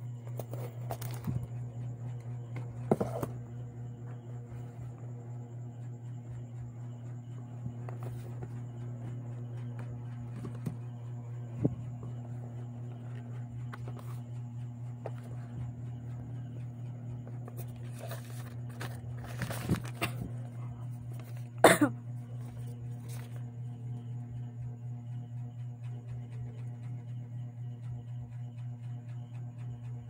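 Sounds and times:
steady low hum: 0.0 - 30.0
paper packaging rustling: 17.6 - 20.2.

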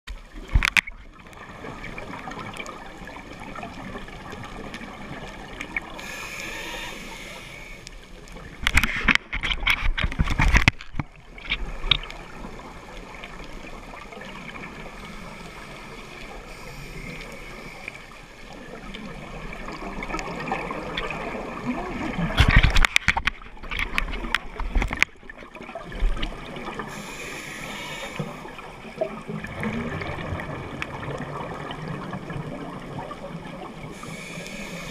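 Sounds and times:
underwater hiss: 5.5 - 8.2, 13.9 - 19.8, 26.6 - 29.0, 33.7 - 34.9.

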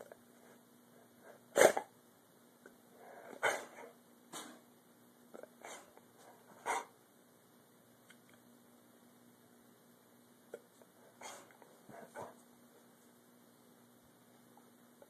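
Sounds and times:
dog barking sharply: 3.4 - 3.9, 6.6 - 6.9.

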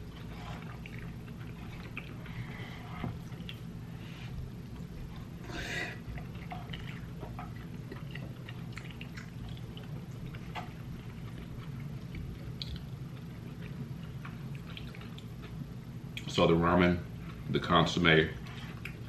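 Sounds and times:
steady low hum: 0.0 - 19.0
wet chewing clicks: 6.2 - 16.3.

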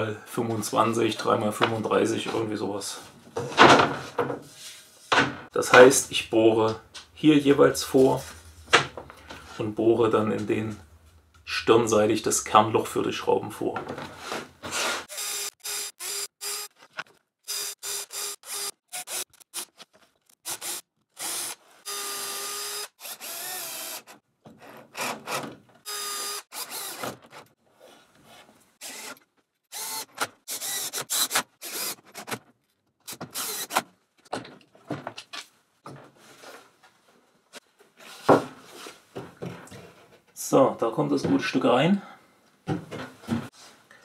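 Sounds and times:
cordless drill whining: 15.1 - 16.9, 17.5 - 19.8, 20.4 - 24.2, 24.9 - 27.1, 28.8 - 32.0, 33.1 - 33.8.

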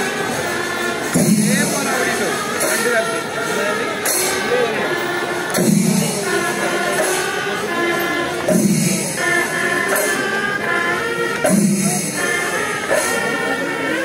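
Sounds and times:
cymbals clashing: 0.0 - 14.0
drums: 0.0 - 14.0.

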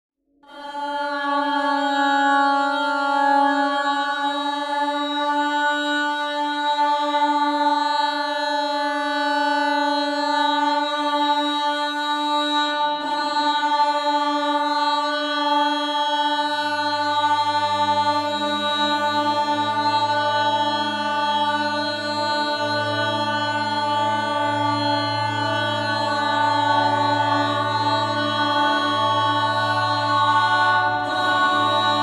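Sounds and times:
drone music with held tones: 16.1 - 32.0.

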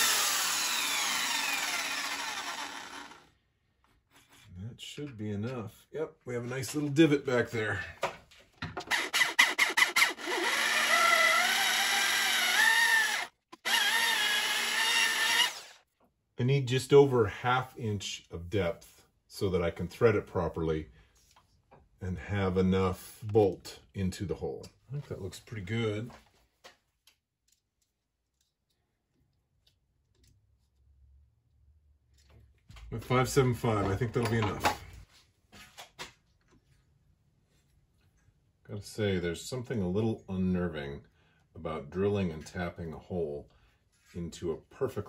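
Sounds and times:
drill chuck clicking: 0.0 - 3.2, 12.3 - 15.7
drill motor whining: 0.0 - 3.3, 8.8 - 15.8.

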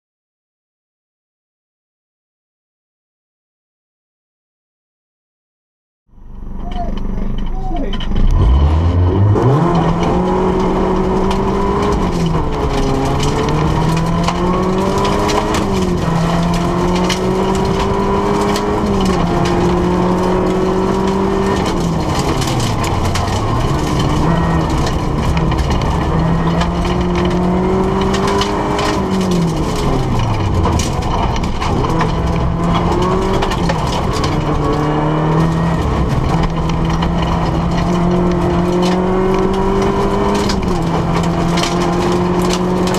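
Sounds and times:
rally car engine revving: 6.2 - 42.9
gravel pinging on car underside: 9.4 - 42.9.

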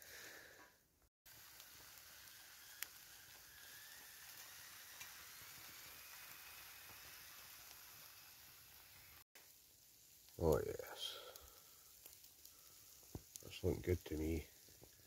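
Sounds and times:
small pops: 1.3 - 7.9, 11.3 - 13.5
chicken sizzling on a grill: 1.3 - 15.0.

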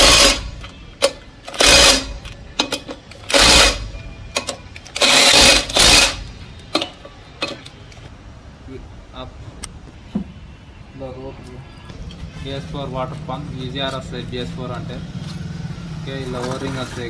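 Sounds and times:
impact wrench bursts: 0.0 - 3.9, 5.0 - 6.8.

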